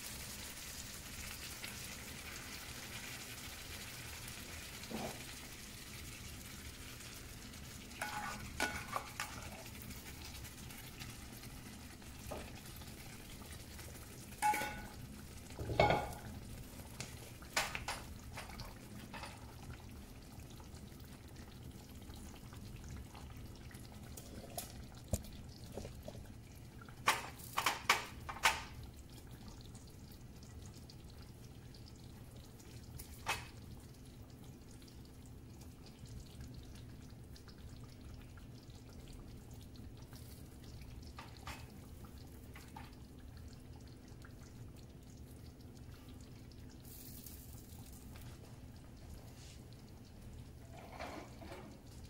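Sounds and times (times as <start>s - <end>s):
ladle stirring sauce in skillet: 0.0s - 27.4s
utensils clinking on cookware: 8.0s - 9.5s, 14.4s - 15.0s, 15.6s - 16.3s.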